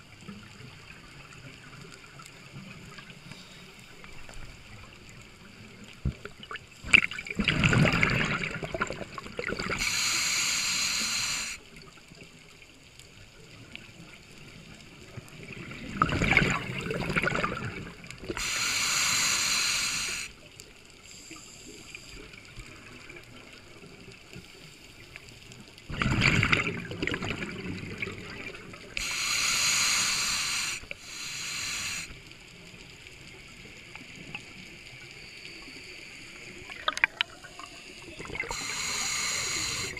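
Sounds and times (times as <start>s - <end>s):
bubbling exhaust underwater: 4.0s - 11.6s, 15.1s - 20.4s, 25.9s - 32.2s, 36.4s - 39.9s
demand valve hissing: 9.8s - 11.6s, 18.4s - 20.4s, 29.0s - 32.2s, 37.7s - 39.9s.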